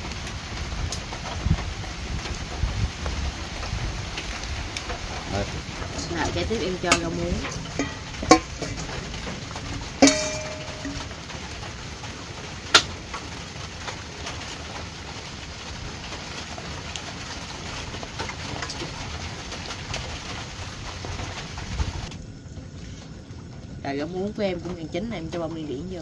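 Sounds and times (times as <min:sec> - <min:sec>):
steady hiss: 0:00.0 - 0:26.0
metal ladle clinking on pot: 0:05.8 - 0:11.2.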